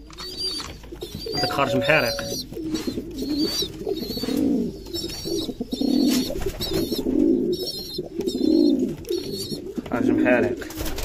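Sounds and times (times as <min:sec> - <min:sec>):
pigeons cooing: 0:00.0 - 0:11.0
thin wavering high peeps: 0:00.4 - 0:09.6.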